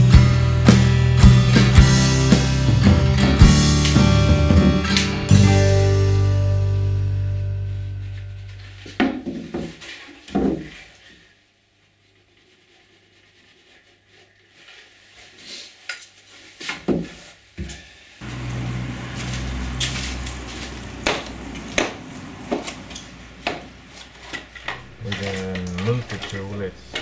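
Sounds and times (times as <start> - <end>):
steady low hum: 24.6 - 27.0.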